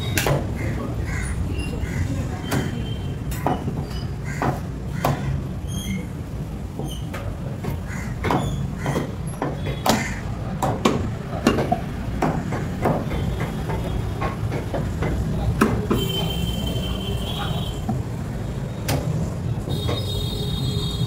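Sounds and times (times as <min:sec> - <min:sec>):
cleaver chopping meat on wood: 0:02.5 - 0:05.3, 0:07.6 - 0:16.0.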